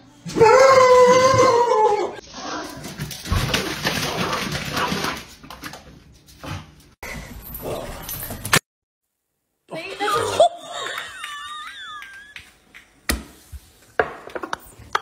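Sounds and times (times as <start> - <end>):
dog whining howl: 0.3 - 2.2.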